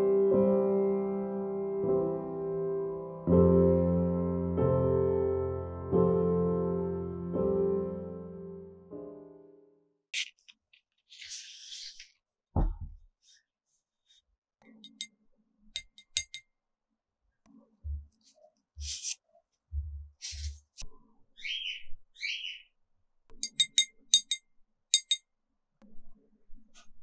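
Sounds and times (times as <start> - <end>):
taps and clinks on glass: 14.9 - 15.1, 15.8 - 16.4, 23.4 - 24.4, 25.0 - 25.2.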